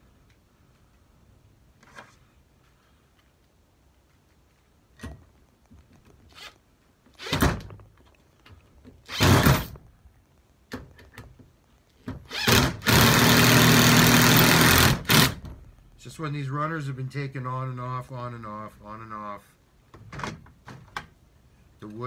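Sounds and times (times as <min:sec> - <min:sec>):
cordless drill driving screw into wood: 0:07.2 - 0:07.7, 0:09.1 - 0:09.8, 0:12.3 - 0:15.5.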